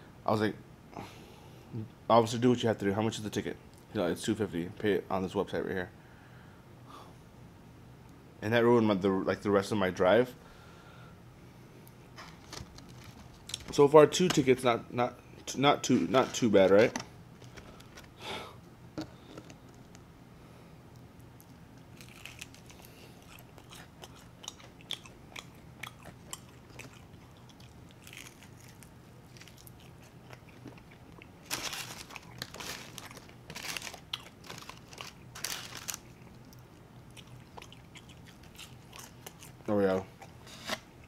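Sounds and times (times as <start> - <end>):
soft chewing: 20.8 - 40.8
crisp crunching bites: 21.9 - 36.6.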